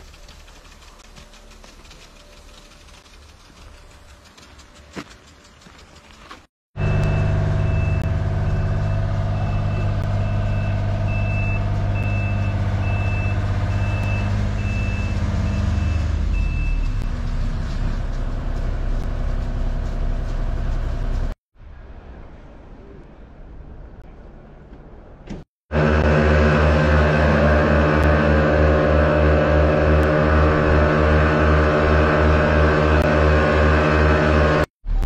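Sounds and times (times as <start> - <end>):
heavy truck engine running: 0.0 - 21.4, 25.7 - 35.0
reversing alarm beeping: 6.8 - 17.0.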